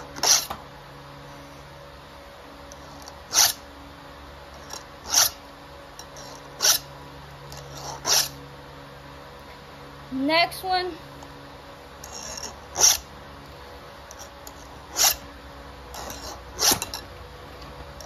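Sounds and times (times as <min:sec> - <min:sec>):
file rasping on chainsaw chain: 0:00.2 - 0:00.5, 0:02.9 - 0:03.6, 0:04.6 - 0:05.4, 0:06.1 - 0:06.8, 0:07.5 - 0:08.4, 0:12.0 - 0:13.0, 0:14.1 - 0:15.2, 0:15.9 - 0:17.0.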